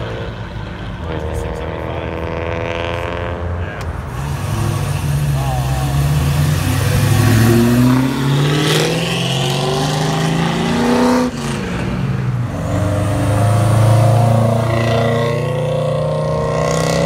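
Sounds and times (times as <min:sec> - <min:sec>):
car engine accelerating hard: 0:04.1 - 0:17.0.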